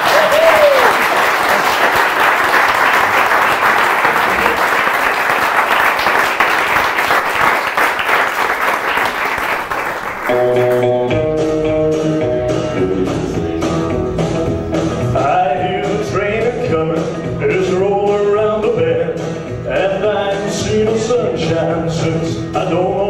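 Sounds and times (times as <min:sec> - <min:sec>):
audience applauding: 0:00.0 - 0:10.9
instrumental music: 0:10.3 - 0:23.0.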